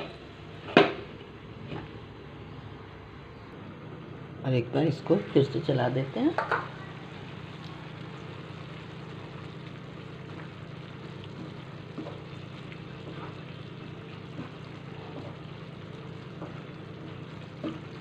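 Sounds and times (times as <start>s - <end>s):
spatula stirring food in pan: 8.0s - 18.0s.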